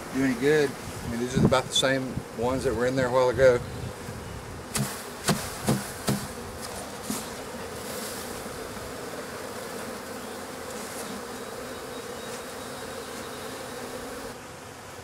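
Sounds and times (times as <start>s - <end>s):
bee swarm humming: 0.0s - 15.0s
knocks on wooden box: 4.8s - 6.3s.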